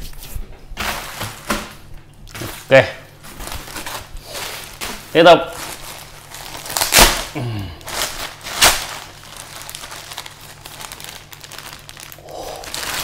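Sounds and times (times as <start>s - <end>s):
plastic bag crinkling: 2.3s - 13.0s.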